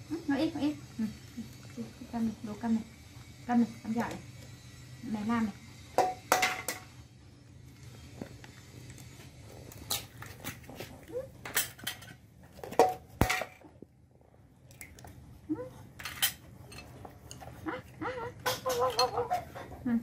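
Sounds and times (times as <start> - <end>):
eggs cracking on a bowl: 14.7 - 15.2.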